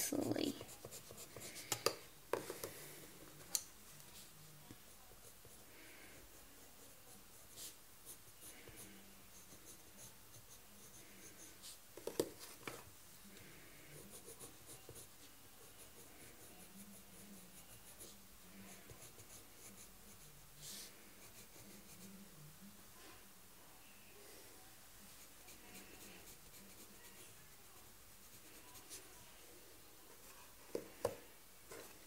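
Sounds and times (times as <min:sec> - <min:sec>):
pencil scratching on paper: 0:00.0 - 0:02.0, 0:04.7 - 0:11.8, 0:13.9 - 0:22.2, 0:25.2 - 0:29.2.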